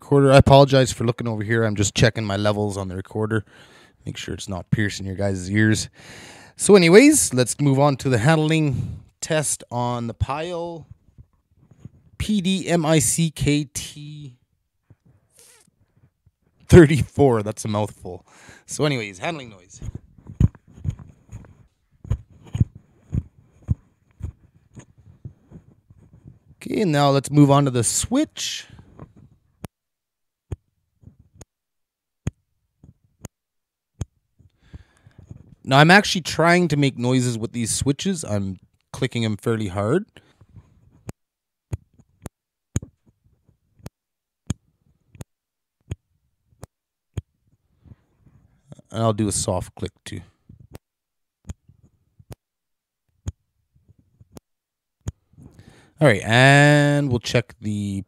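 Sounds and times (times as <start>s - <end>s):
fingers tapping microphone: 10.8s - 12.2s, 18.9s - 26.6s, 28.7s - 29.7s, 30.5s - 31.5s, 34.0s - 35.6s, 40.4s - 48.5s, 51.4s - 52.4s, 53.1s - 54.4s.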